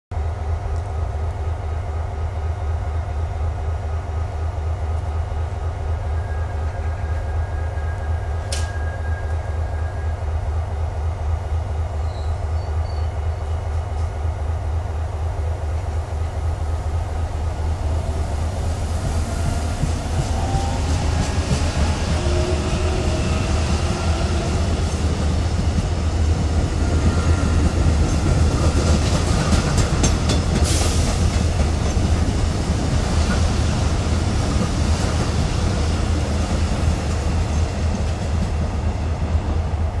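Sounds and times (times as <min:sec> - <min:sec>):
low train rumble: 0:00.1 - 0:40.0
train wheels clicking over rail joints: 0:23.8 - 0:33.7.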